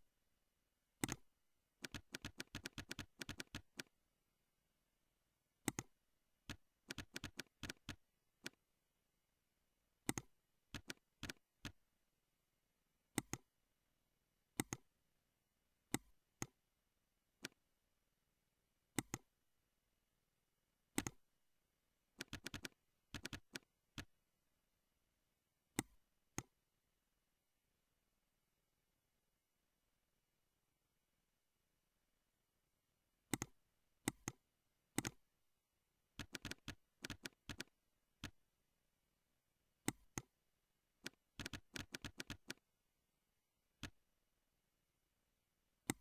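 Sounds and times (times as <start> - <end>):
mouse and keyboard clicks: 1.0 - 4.0, 5.6 - 8.6, 10.0 - 11.8, 13.1 - 13.5, 14.5 - 14.9, 15.9 - 16.6, 17.4 - 17.6, 18.9 - 19.3, 20.9 - 21.3, 22.2 - 24.2, 25.7 - 26.6, 33.2 - 35.3, 36.2 - 38.4, 39.8 - 40.4, 41.0 - 42.7, 43.8 - 44.0.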